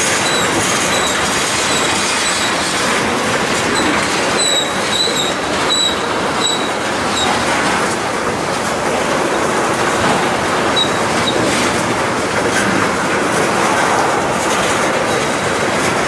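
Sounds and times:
steel train wheels on rail: 0:00.0 - 0:16.0
high-pitched wheel squeals: 0:00.2 - 0:02.6, 0:03.7 - 0:07.4, 0:10.7 - 0:11.4.

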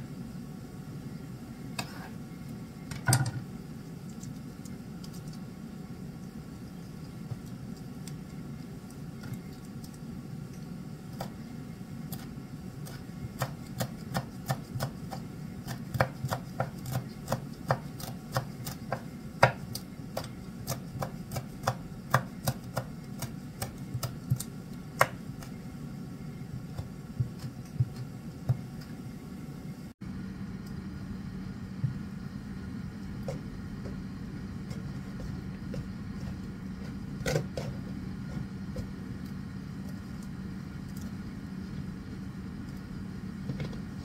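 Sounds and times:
steady low hum: 0:00.0 - 0:44.0
knife chopping on wooden board: 0:12.8 - 0:25.2.

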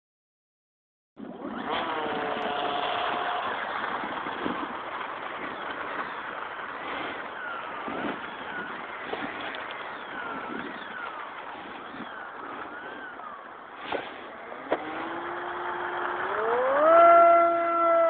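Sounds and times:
model airplane motor whine: 0:01.2 - 0:18.0.

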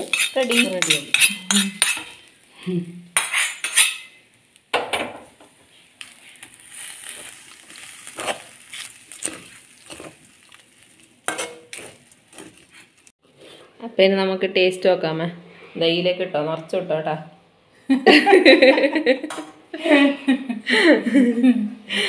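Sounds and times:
spoon scraping a metal pan: 0:00.0 - 0:02.3, 0:03.2 - 0:04.2, 0:11.2 - 0:13.8.

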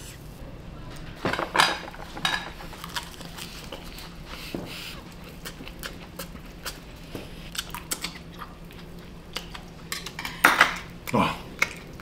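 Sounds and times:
person chewing food: 0:02.6 - 0:12.0.

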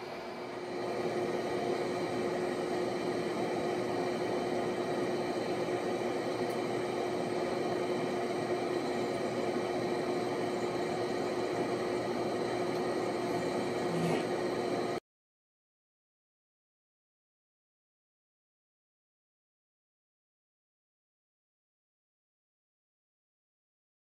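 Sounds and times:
fan whirring: 0:00.0 - 0:15.0.

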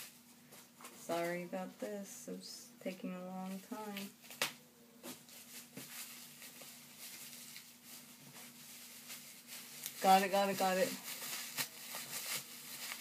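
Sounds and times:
plastic wrap crinkling: 0:03.4 - 0:13.0.

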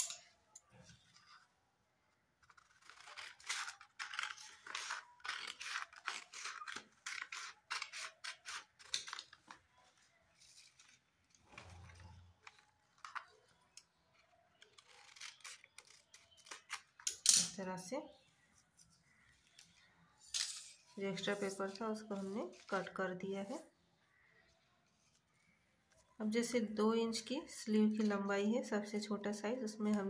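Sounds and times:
scissors snipping paper: 0:02.4 - 0:09.6, 0:12.4 - 0:17.3.

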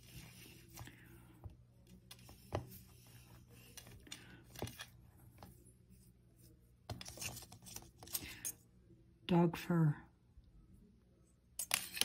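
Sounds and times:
hands rolling clay: 0:00.0 - 0:08.5.

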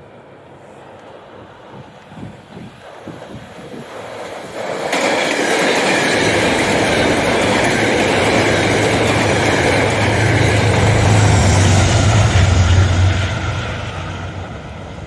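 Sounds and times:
train wheels rushing on rails: 0:00.0 - 0:15.0
locomotive low hum: 0:05.8 - 0:15.0.

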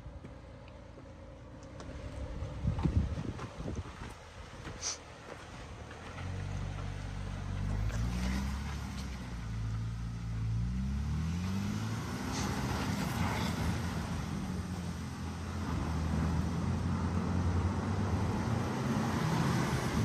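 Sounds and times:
suv engine revving under load: 0:04.8 - 0:20.0.

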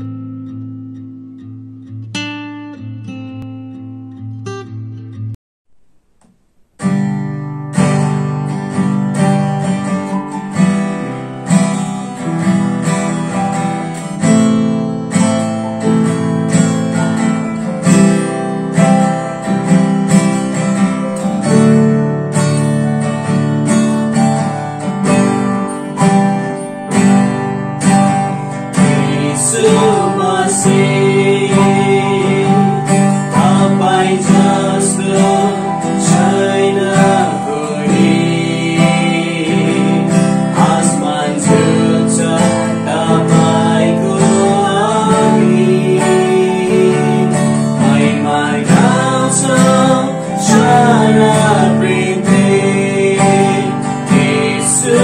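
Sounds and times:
acoustic guitar strumming: 0:00.0 - 0:55.0
man singing: 0:28.7 - 0:55.0.

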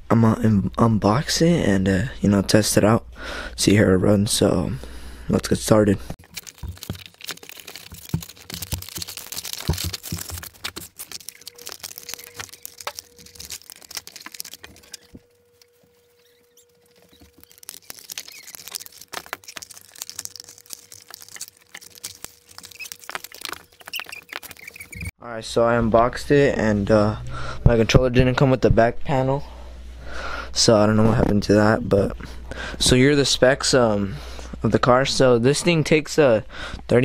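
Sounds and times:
cardboard and packaging rustling: 0:06.2 - 0:25.1.

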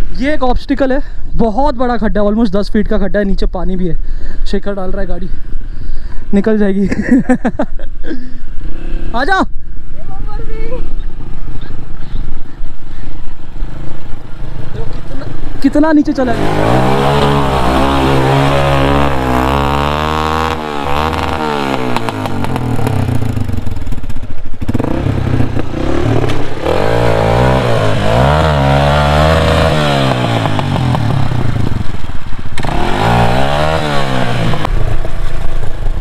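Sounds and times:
dirt bike engine revving: 0:16.1 - 0:36.0.

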